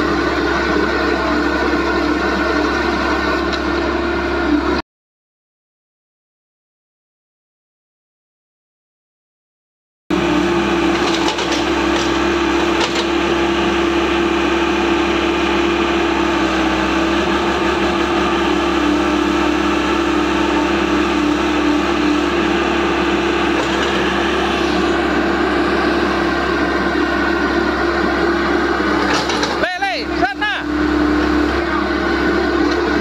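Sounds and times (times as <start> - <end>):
excavator diesel engine running: 0.0 - 4.8, 10.1 - 33.0.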